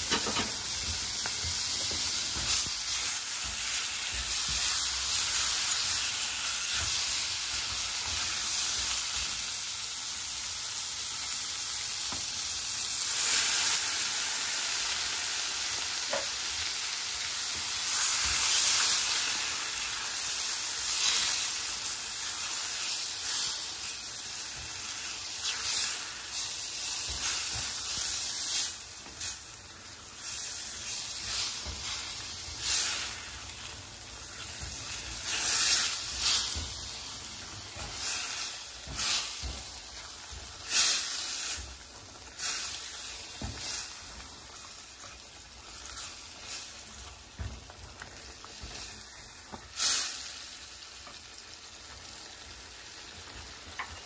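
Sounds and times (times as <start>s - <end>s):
meat sizzling in a pan: 0.0s - 54.0s
spatula scraping a pan: 34.4s - 37.0s.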